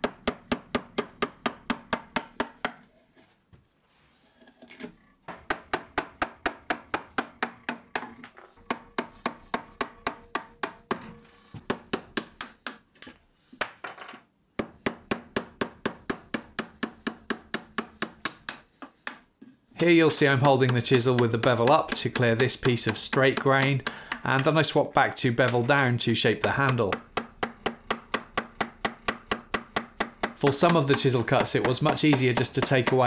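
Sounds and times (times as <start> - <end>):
mallet knocking on chisel: 5.3 - 12.8, 20.4 - 24.5, 25.4 - 33.0.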